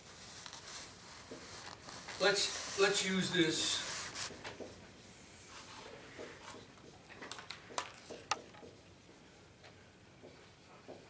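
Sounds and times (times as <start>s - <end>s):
marker writing on whiteboard: 1.2s - 1.6s.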